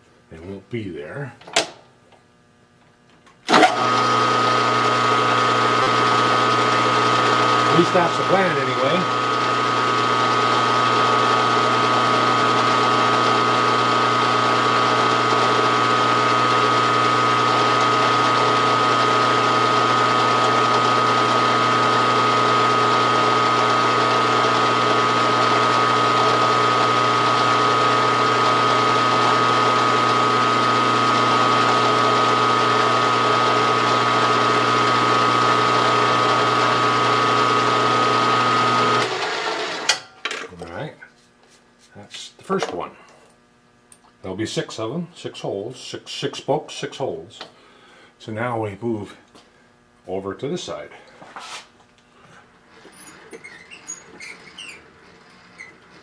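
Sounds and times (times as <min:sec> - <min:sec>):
milling machine spindle whine: 0:03.5 - 0:39.9.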